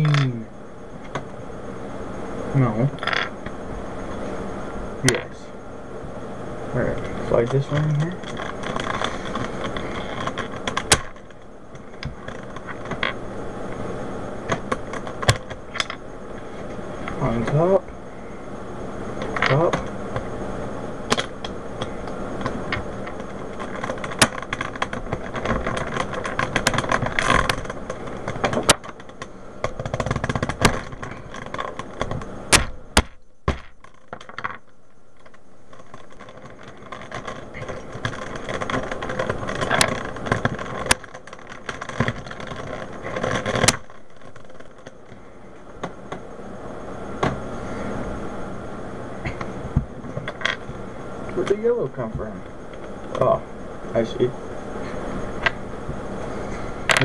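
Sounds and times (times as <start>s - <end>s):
handling noise: 6.8s - 17.8s, 19.1s - 53.4s.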